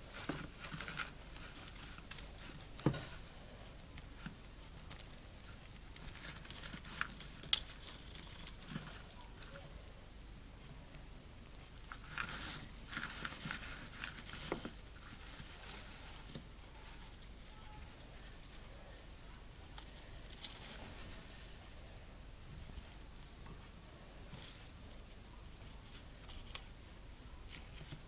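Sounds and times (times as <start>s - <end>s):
gerbil rustling in paper bedding: 0.0s - 3.3s, 6.0s - 9.6s, 11.9s - 17.6s.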